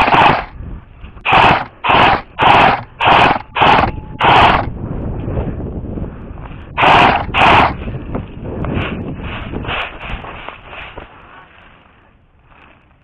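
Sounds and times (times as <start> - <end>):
airsoft rifle full-auto bursts: 0.0 - 0.5, 1.2 - 4.7, 6.8 - 7.8.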